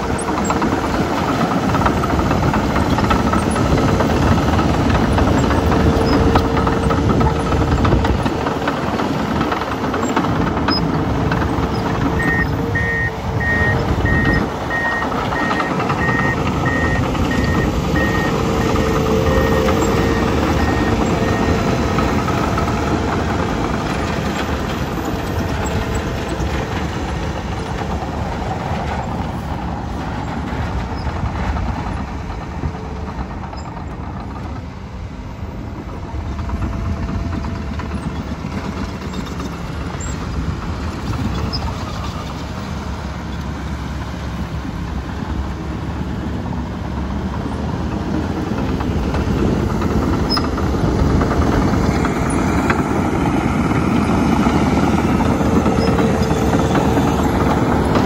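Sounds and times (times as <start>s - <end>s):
bulldozer diesel engine running: 0.0s - 58.0s
reversing alarm beeping: 11.8s - 22.1s.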